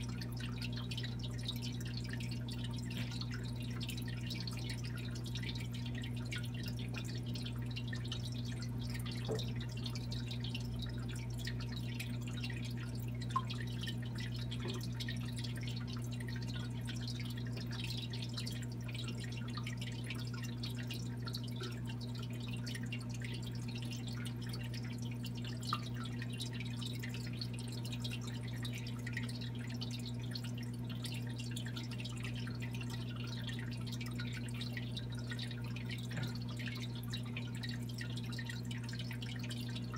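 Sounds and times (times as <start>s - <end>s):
low pump hum: 0.0s - 39.9s
water trickling and dripping: 0.0s - 39.9s
bubbles bursting: 0.1s - 17.6s.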